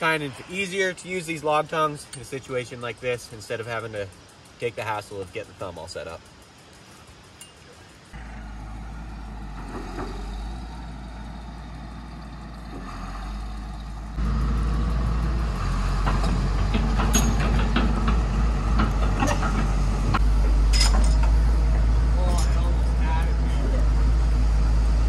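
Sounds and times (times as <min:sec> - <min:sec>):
diesel engine running: 0:08.2 - 0:25.0
metallic clanks and knocks: 0:15.9 - 0:22.7.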